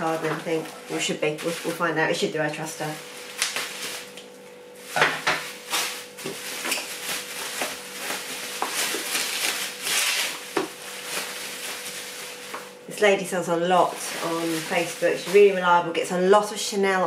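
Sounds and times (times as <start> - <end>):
bubble wrap crinkling: 0.0 - 16.5
sharp crackles: 2.8 - 4.4.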